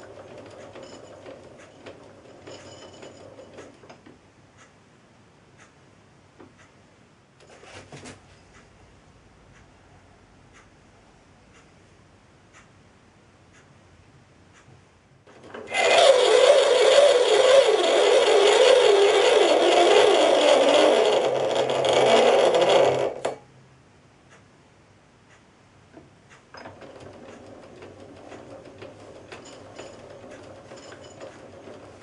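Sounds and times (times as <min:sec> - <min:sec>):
metal lathe running with whine: 0:15.6 - 0:23.2.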